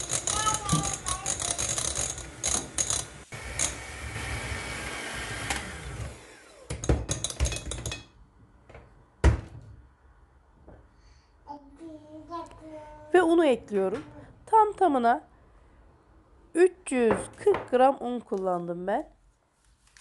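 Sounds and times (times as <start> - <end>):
electric hand mixer whirring: 1.5 - 7.0.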